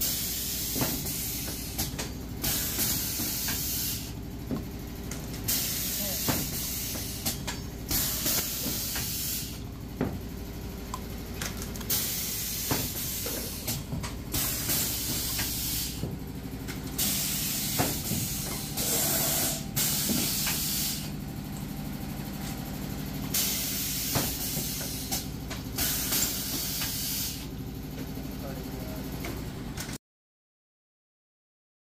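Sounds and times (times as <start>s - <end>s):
compressed air hissing: 0.0s - 4.2s, 5.5s - 9.6s, 11.9s - 16.0s, 17.0s - 21.1s
low machine hum: 0.0s - 29.9s.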